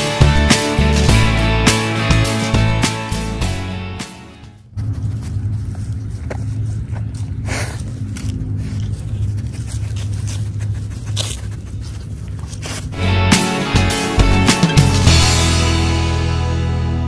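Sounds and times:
music: 0.0 - 4.7, 13.0 - 17.0
low steady rumble: 4.6 - 13.0
dog sniffing: 5.6 - 15.0.

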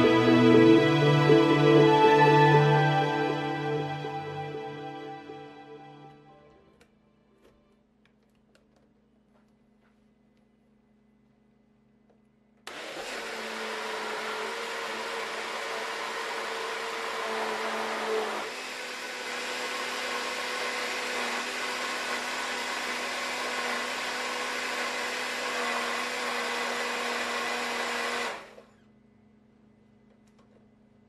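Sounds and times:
electric blender running: 12.7 - 28.7.

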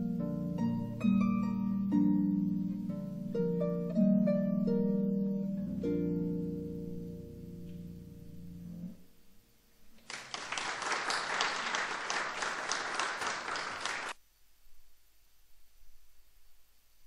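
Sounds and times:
audience applauding: 10.0 - 14.2.

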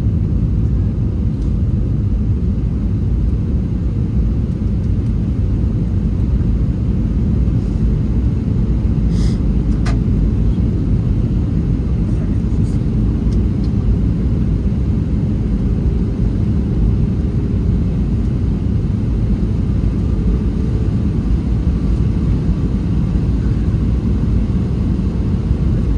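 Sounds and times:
airplane engine drone: 0.0 - 25.9.

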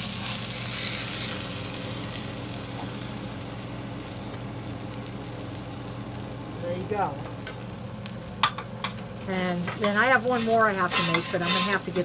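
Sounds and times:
burger patty sizzling on griddle: 0.0 - 12.0
steady low hum: 0.0 - 12.0
spatula lifting patty: 9.7 - 12.0.

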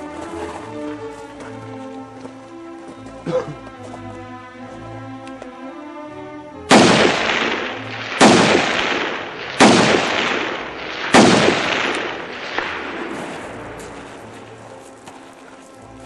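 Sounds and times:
rifle shots with echo: 6.7 - 14.6.

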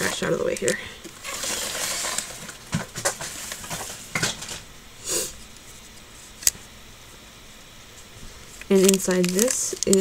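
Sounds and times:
packaging rustle: 0.1 - 4.0, 8.6 - 10.0.

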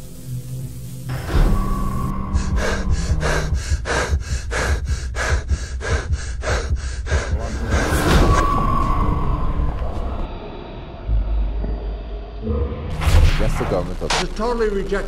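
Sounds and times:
low rumble: 0.0 - 15.0
person gasping for breath: 2.4 - 7.9.

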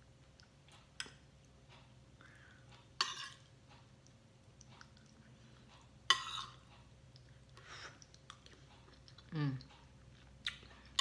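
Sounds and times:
quiet chewing: 0.2 - 11.0
cutlery scraping a plate: 3.0 - 3.5, 6.0 - 6.7.

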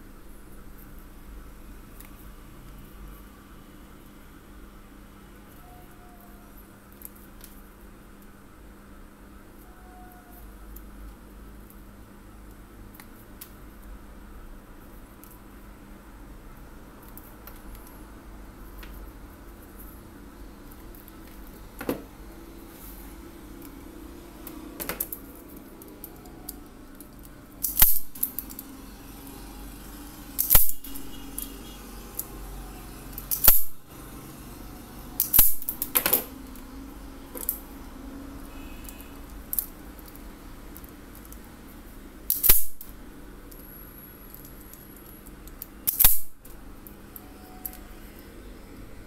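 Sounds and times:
wire cutters snapping: 25.8 - 28.7, 30.4 - 32.3, 33.1 - 33.7, 35.2 - 36.6, 42.3 - 42.9, 45.5 - 46.3.

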